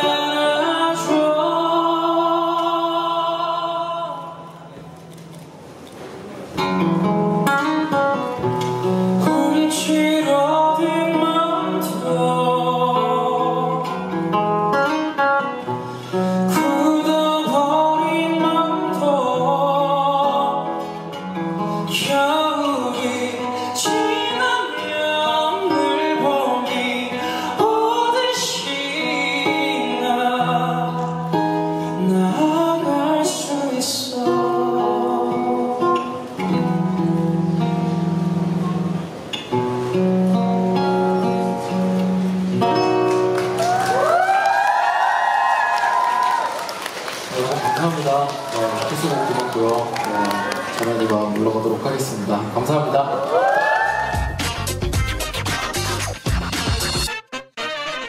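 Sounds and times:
man singing into a microphone: 0.0s - 4.8s, 9.1s - 14.8s, 16.3s - 36.7s
instrumental accompaniment: 54.2s - 58.0s.

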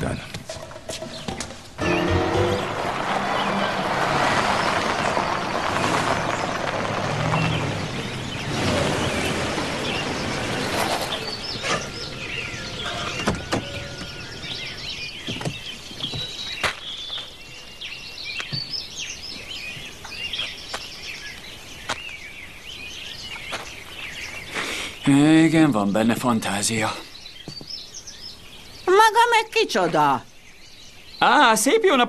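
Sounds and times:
birds chirping: 0.0s - 32.0s
car driving on dirt: 1.8s - 17.5s.

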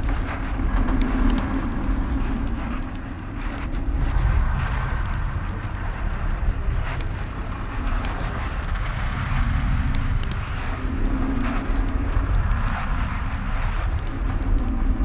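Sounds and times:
faint clicks and knocks: 0.0s - 15.0s
steady low rumble: 0.0s - 15.0s.

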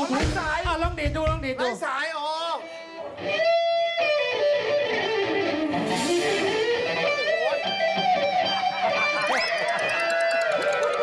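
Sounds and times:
electric guitar solo: 2.5s - 11.0s.

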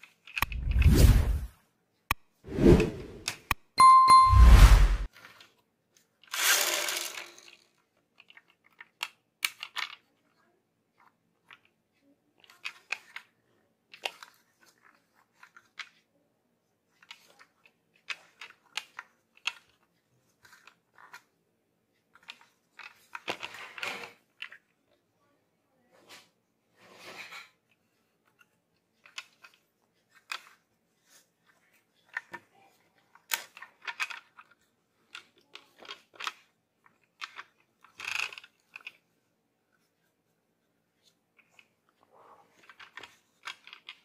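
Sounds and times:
plastic toy clicks and taps: 8.2s - 10.0s.

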